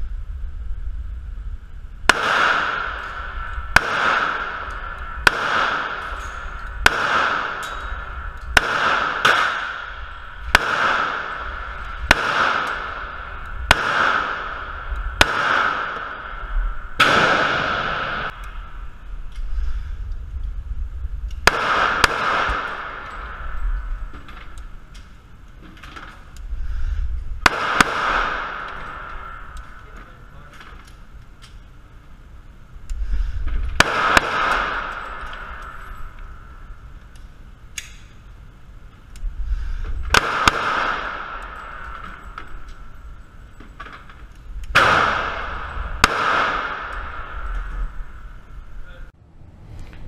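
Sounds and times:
pistol shots echoing indoors: 2.0s - 18.6s, 21.4s - 25.1s, 27.4s - 31.6s, 33.7s - 38.2s, 40.1s - 48.8s.

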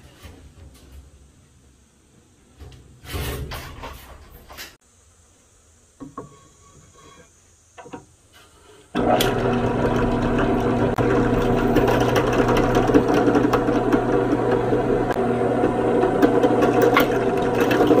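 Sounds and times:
electric drill boring wood: 9.0s - 18.0s.

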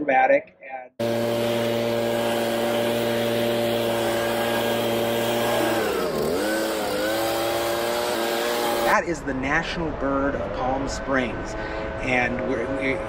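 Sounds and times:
leaf blower whining: 1.0s - 9.0s.

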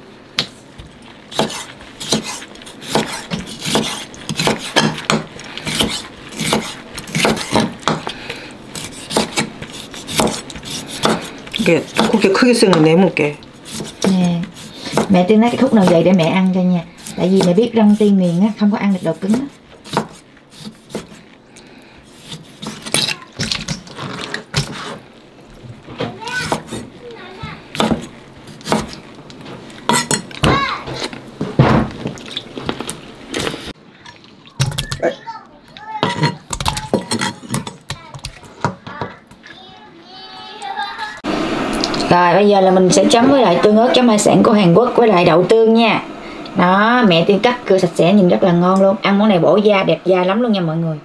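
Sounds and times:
knife slicing on cutting board: 1.3s - 7.7s, 8.7s - 11.3s, 13.6s - 16.0s.

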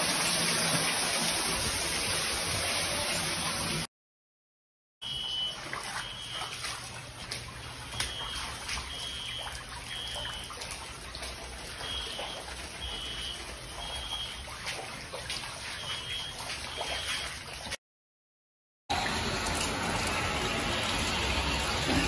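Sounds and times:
water running and trickling: 0.0s - 3.9s, 5.1s - 17.8s, 18.9s - 22.0s
electronic alarm high beeps: 5.0s - 6.6s, 7.9s - 10.5s, 11.8s - 14.4s.

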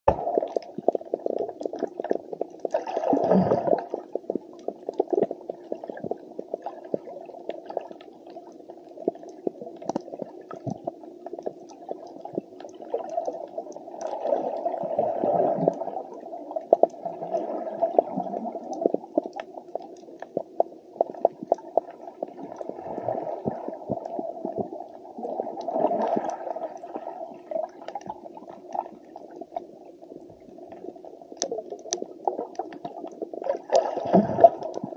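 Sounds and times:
bubbling water swells: 0.1s - 34.9s
muffled underwater rush: 0.1s - 34.9s
sharp underwater clicks: 31.4s - 33.9s.

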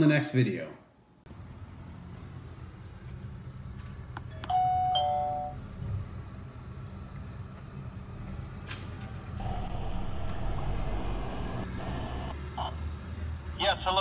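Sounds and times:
ding-dong chime: 4.4s - 5.6s
low rumble: 9.4s - 12.4s.

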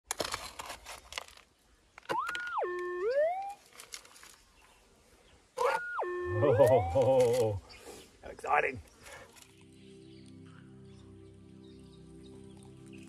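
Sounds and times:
electronic tone rising and falling: 2.2s - 3.6s, 5.6s - 7.4s.

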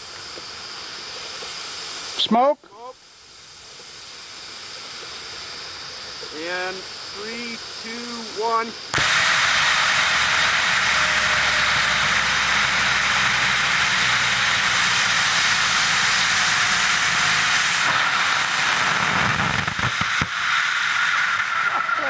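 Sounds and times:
rocket motor roaring: 3.4s - 22.0s
sharp pops: 17.8s - 21.4s.

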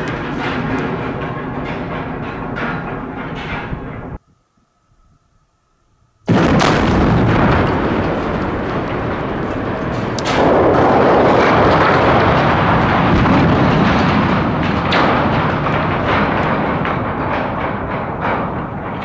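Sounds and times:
steel tower crashing down: 0.0s - 4.2s, 6.3s - 19.0s
explosive charge blast: 6.3s - 15.3s.

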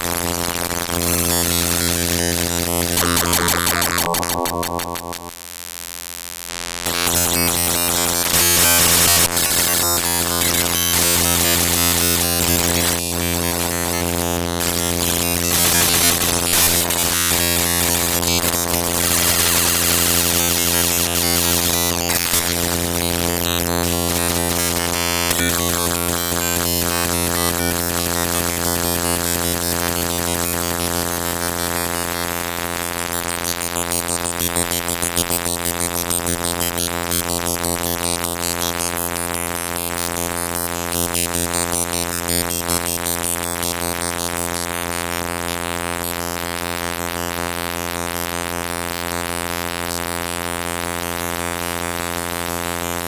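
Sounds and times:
low buzzing drone: 0.1s - 5.5s, 6.9s - 30.0s.

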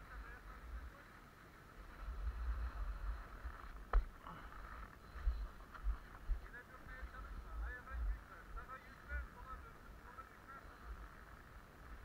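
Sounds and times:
wind rumbling on microphone: 0.0s - 12.0s
skis scraping on snow: 1.7s - 7.3s.

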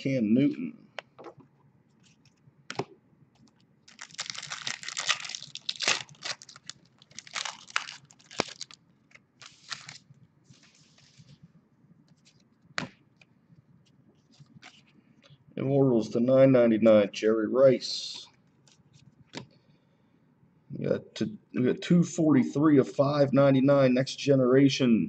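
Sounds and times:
foil wrapper tearing and crinkling: 3.9s - 10.1s.

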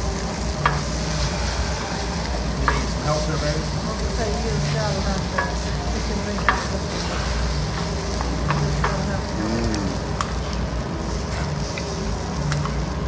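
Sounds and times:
food sizzling: 0.0s - 13.0s
spatulas scraping a griddle: 4.6s - 9.4s.

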